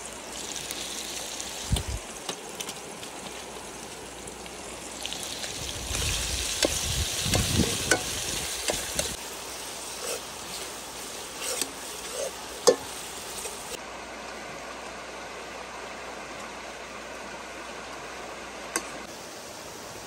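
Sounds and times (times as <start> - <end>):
onions sizzling in oil: 0.0 - 13.8, 18.4 - 20.0
metal ladle scraping pot: 11.4 - 12.9.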